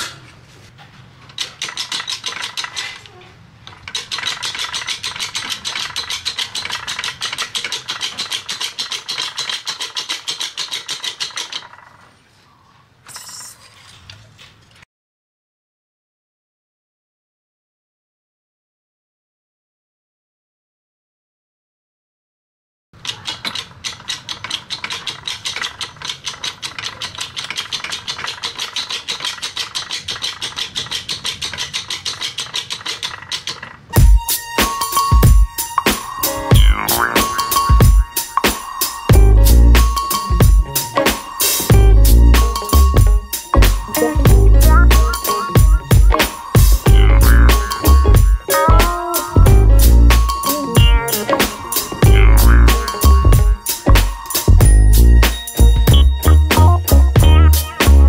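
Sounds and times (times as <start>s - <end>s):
hydraulic pump chattering: 3.7s - 11.9s, 23.0s - 58.0s.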